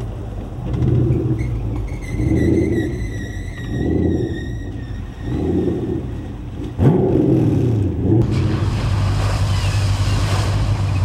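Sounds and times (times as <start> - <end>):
car engine running: 5.5 - 11.0
water splashing and rushing: 6.7 - 11.0.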